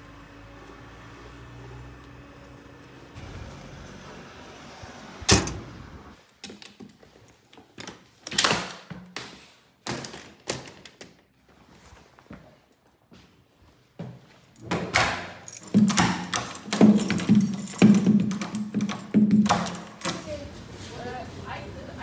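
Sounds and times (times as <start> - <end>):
metal locker door banging shut: 5.3 - 5.7, 14.7 - 20.3
knocks and thuds of handling: 14.6 - 20.2.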